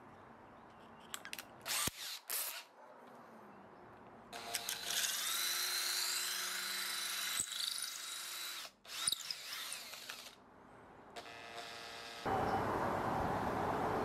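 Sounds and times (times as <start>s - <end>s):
electric drill motor whine: 4.4s - 10.3s.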